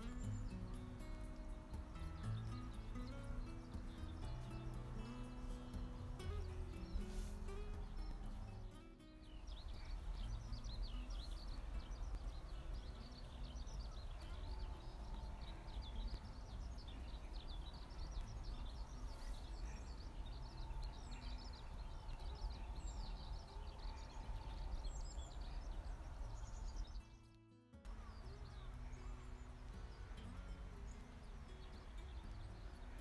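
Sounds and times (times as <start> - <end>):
small birds chirping: 0.0 - 33.0
steady low rumble: 9.4 - 27.0.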